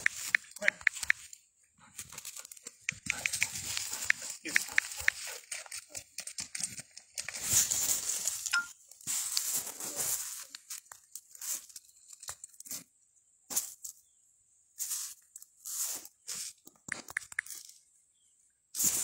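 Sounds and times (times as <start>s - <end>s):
branches and leaves crackling underfoot: 2.0s - 5.8s, 7.2s - 12.8s.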